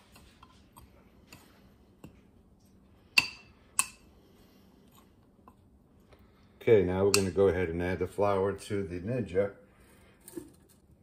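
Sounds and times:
spoon stirring flour: 0:00.0 - 0:06.1.

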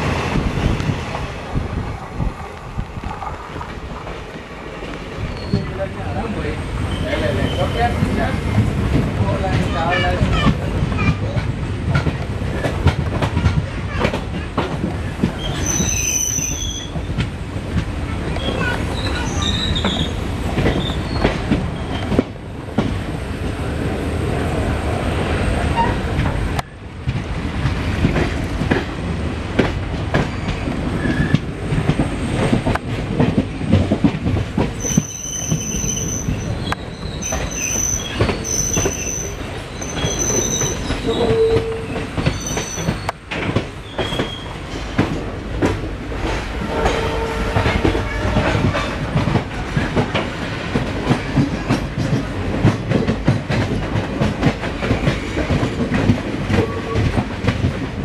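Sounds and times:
train wheels rumbling and rattling: 0:00.0 - 0:58.0
wheel flange squeal: 0:34.8 - 0:43.2, 0:43.8 - 0:44.5.

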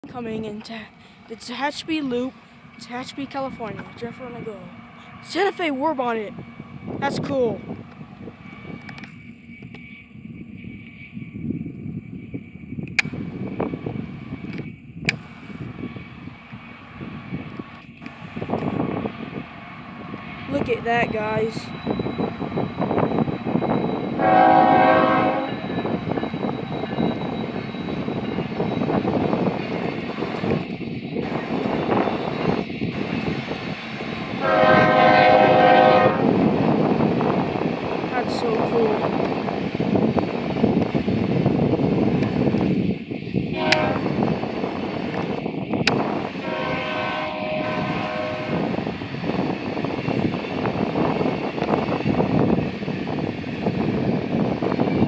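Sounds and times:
freight train rumbling past: 0:00.0 - 0:55.0
train air horn: 0:24.2 - 0:25.7, 0:34.4 - 0:36.3, 0:43.6 - 0:44.2, 0:46.4 - 0:48.7.

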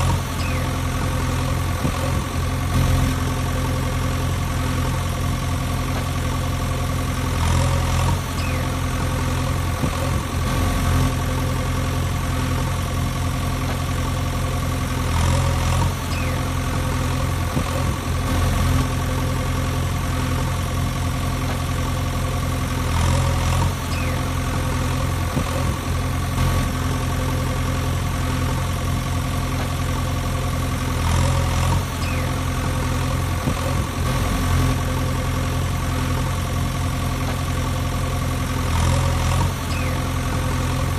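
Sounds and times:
engine idling: 0:00.0 - 0:40.9.

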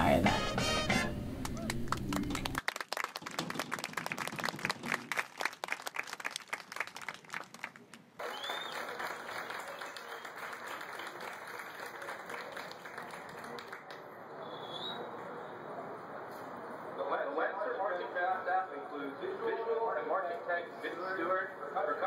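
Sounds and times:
crowd applauding: 0:01.4 - 0:14.1
crowd noise: 0:07.2 - 0:22.0.

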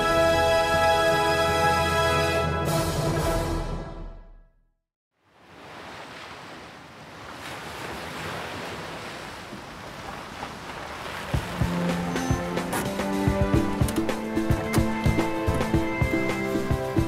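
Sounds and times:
theme music: 0:00.0 - 0:04.6, 0:11.5 - 0:17.0
wind: 0:05.1 - 0:17.0
sea surf: 0:05.2 - 0:17.0.

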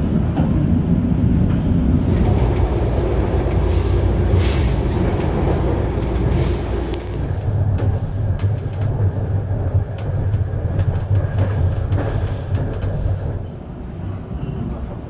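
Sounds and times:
train coach low rumble: 0:00.0 - 0:15.0
sharp clicks and rattles: 0:02.0 - 0:03.8, 0:04.4 - 0:13.4.

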